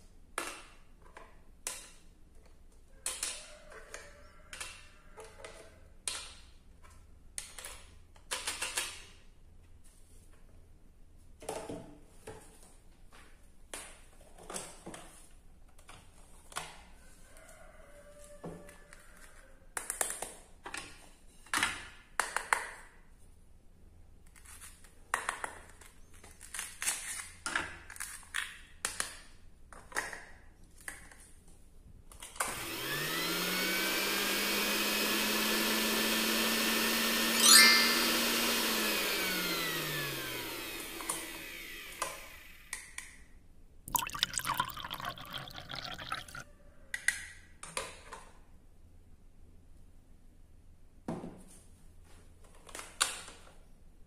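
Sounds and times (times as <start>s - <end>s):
toy hand blender motor whirring: 32.4s - 42.8s.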